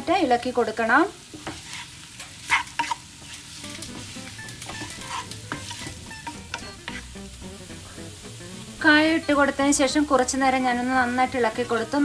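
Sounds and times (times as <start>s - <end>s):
oil sizzling: 0.2s - 12.0s
spatula scraping frying pan: 1.4s - 8.8s.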